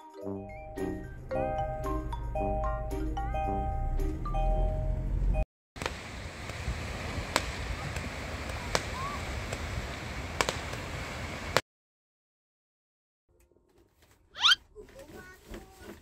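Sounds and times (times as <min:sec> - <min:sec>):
surf washing onto beach: 0:05.8 - 0:11.6.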